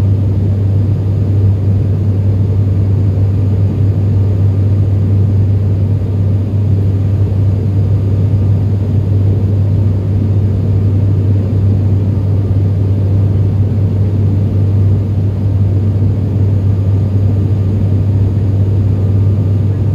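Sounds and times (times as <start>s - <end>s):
low propeller hum: 0.0s - 19.9s.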